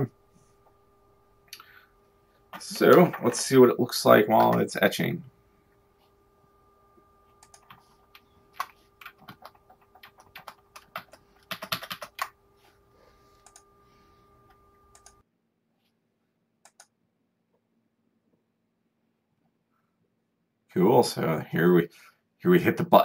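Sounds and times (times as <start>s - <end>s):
faint steady hum: 0.0s - 23.0s
keyboard and mouse clicking: 7.4s - 12.4s, 14.9s - 15.2s, 16.6s - 16.9s.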